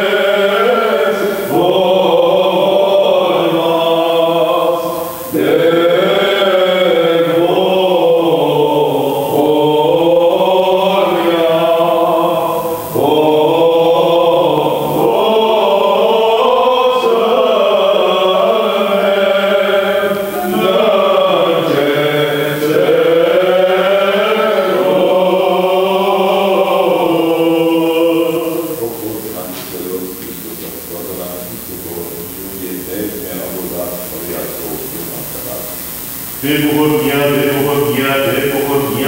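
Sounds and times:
men chanting a hymn: 0.0s - 39.0s.

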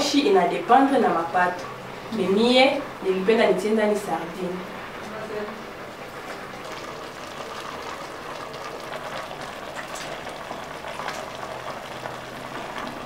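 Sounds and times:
pot simmering with bubbling hiss: 0.0s - 13.0s.

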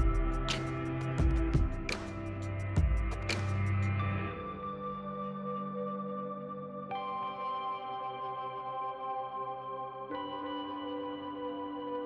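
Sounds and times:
deep bass: 0.0s - 4.3s
synth chords: 0.0s - 12.0s.

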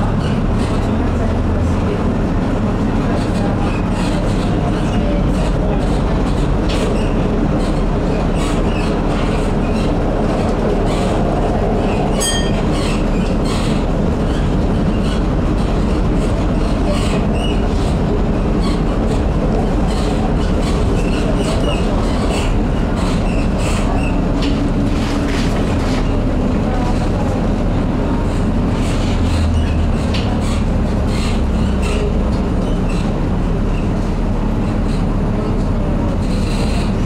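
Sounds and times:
tram motors and wheels rumbling: 0.0s - 37.0s.

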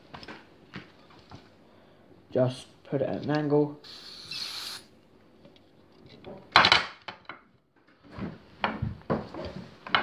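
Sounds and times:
gas burst: 3.8s - 4.9s.

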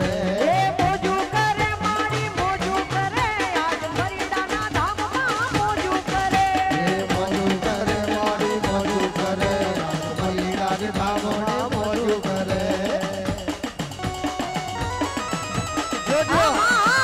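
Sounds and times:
fast hand-drum beat: 0.0s - 17.0s
folk melody: 13.8s - 17.0s.

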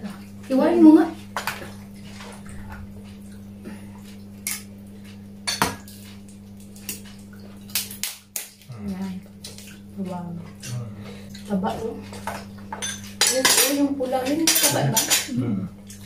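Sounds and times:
steady low hum: 0.0s - 16.0s
crab shell cracking: 7.6s - 8.7s.

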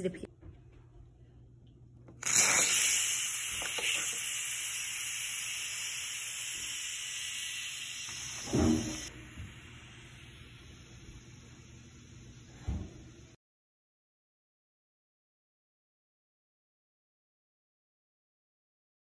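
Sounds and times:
steam valve hissing: 2.2s - 13.4s.

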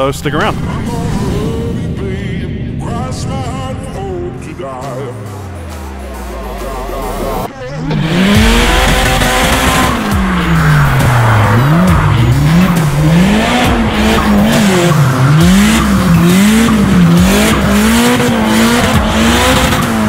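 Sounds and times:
car engine revving: 0.5s - 20.0s.

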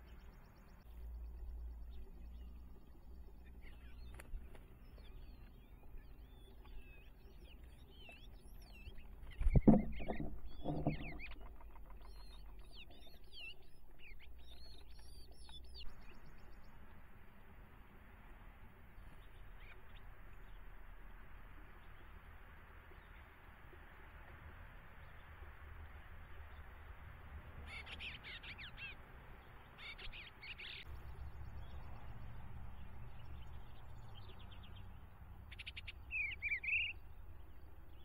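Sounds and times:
small birds chirping: 0.0s - 38.0s
thump on nest box: 9.5s - 11.2s.

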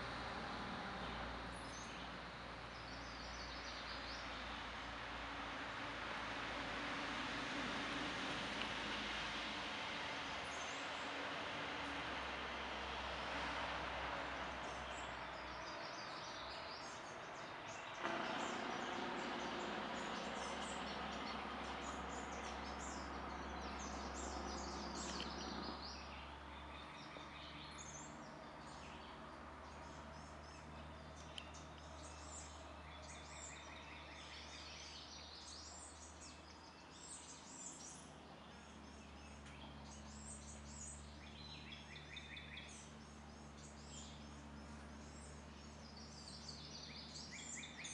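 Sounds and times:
outdoor background noise: 0.0s - 47.9s
small birds chirping: 14.6s - 47.9s
low hum: 17.7s - 33.3s.

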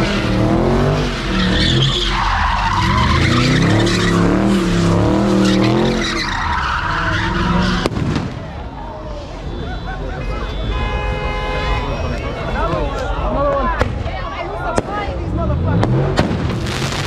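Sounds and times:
car engine revving: 0.0s - 8.2s, 15.2s - 17.0s
tires screeching: 0.0s - 17.0s.

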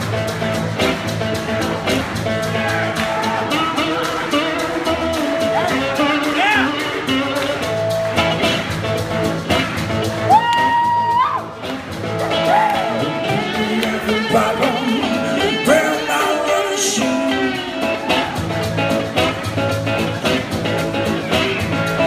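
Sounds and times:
drum beat: 0.0s - 15.8s
acoustic guitar: 0.0s - 22.0s
man singing: 13.0s - 18.0s.

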